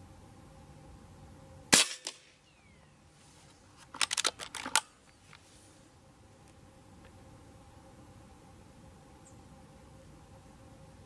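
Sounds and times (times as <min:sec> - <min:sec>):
air rifle shot crack: 0:01.7 - 0:02.4.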